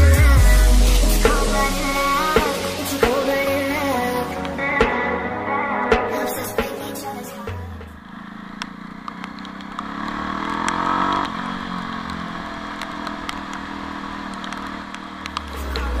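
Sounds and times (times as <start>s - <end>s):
motorcycle engine running: 7.5s - 16.0s
sharp ticks: 8.5s - 15.8s.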